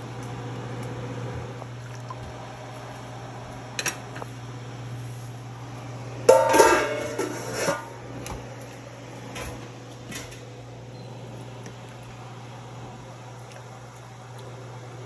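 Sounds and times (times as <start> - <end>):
metal pot lid clanging: 6.3 - 8.0.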